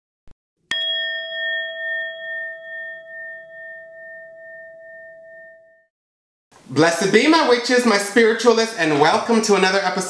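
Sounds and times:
bell-like chime ringing: 0.7 - 5.9.

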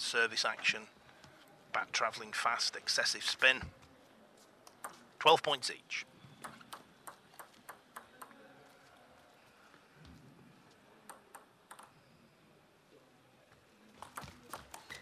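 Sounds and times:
table tennis ball bouncing: 6.4 - 8.4, 11.1 - 12.0.

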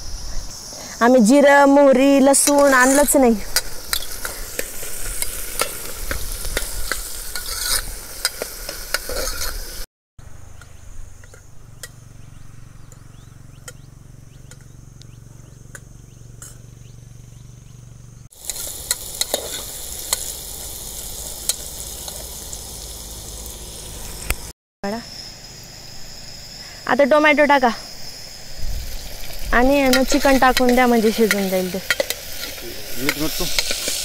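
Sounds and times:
onions sizzling in oil: 2.0 - 9.9, 18.3 - 24.5, 27.5 - 34.0.

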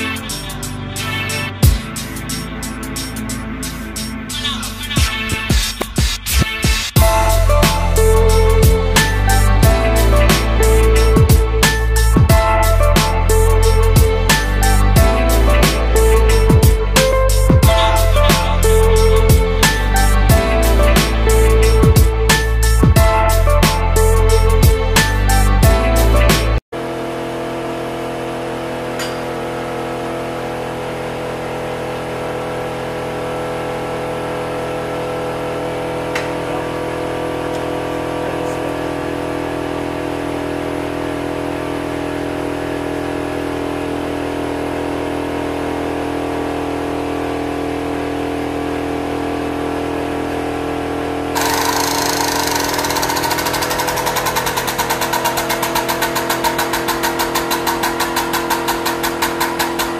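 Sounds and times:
hydraulic pump motor humming: 26.8 - 44.1, 51.1 - 59.9.

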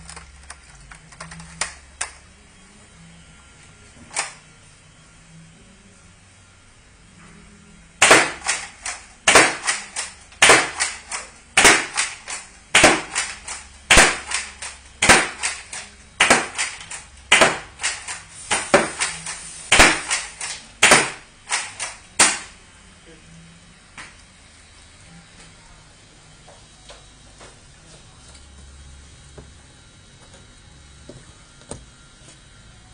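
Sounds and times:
toy dart blaster firing: 8.0 - 22.6.

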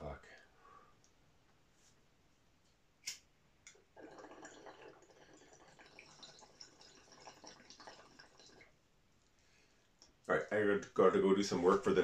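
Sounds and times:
water bubbling in a bong: 3.8 - 8.8.

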